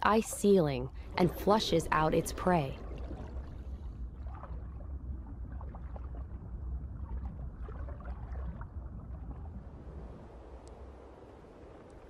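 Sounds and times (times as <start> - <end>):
underwater rush of water: 2.7 - 12.0.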